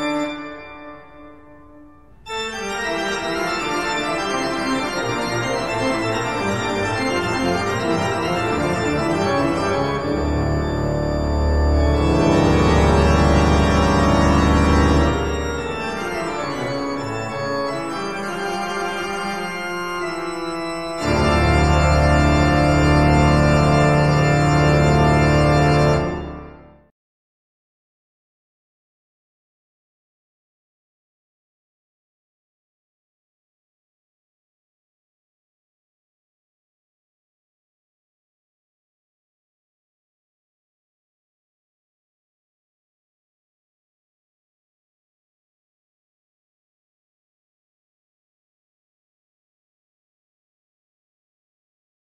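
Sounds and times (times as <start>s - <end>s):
slow organ-like keyboard chords: 0.0s - 26.8s.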